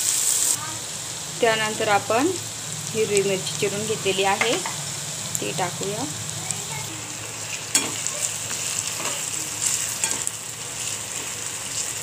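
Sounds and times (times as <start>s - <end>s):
onions sizzling in hot oil: 0.0s - 12.0s
metal spatula scraping a pan: 7.5s - 11.3s
spatula clinking against pan: 7.7s - 8.1s.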